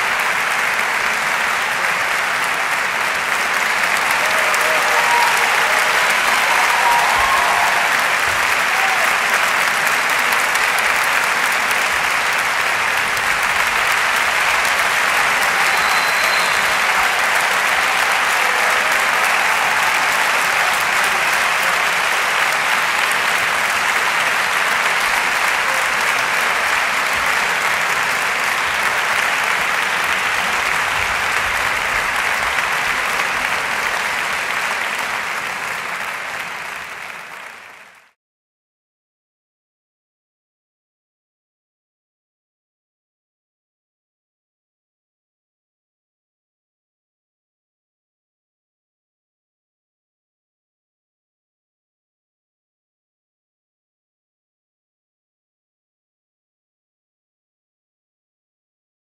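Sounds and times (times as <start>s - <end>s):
audience applauding: 0.0s - 38.2s.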